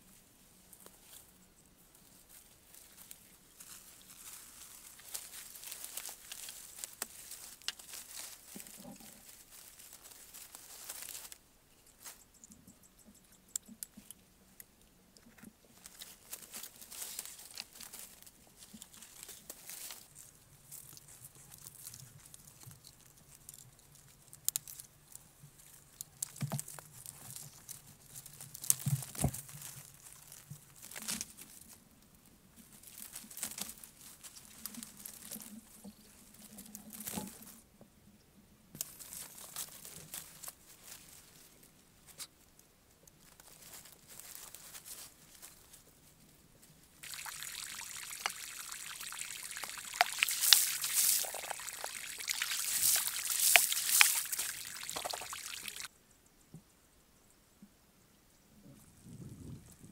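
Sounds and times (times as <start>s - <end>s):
leaves and twigs rustling: 0.0s - 14.6s, 15.2s - 37.6s, 38.8s - 55.9s
twigs snapping: 3.0s - 11.4s, 47.0s - 55.9s.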